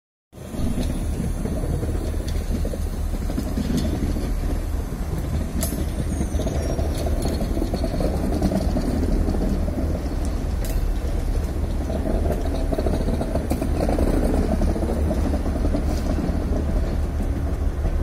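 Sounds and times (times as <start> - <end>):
train coaches rumbling: 0.4 - 18.0.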